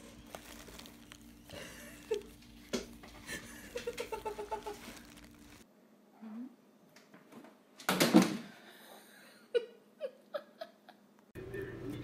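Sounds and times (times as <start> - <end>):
bubble wrap crinkling: 0.0 - 5.7.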